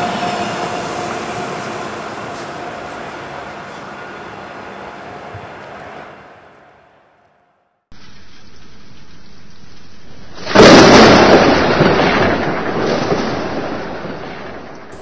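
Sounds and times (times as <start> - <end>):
rain hiss: 8.0 - 15.0
thunderclap rumbling: 10.2 - 15.0.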